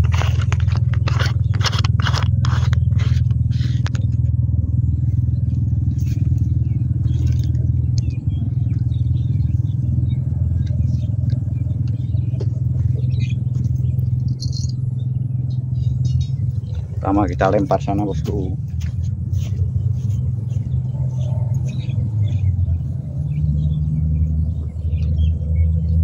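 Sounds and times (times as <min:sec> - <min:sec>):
scraping and clattering handling: 0:00.0 - 0:04.4
steady low rumble: 0:00.0 - 0:26.0.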